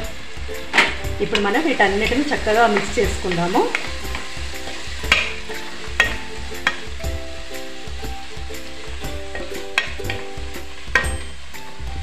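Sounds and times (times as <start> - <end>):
spatula stirring in pan: 0.0 - 11.9
food sizzling in oil: 0.0 - 12.0
spatula knocking against pan: 5.0 - 7.2, 9.0 - 11.3.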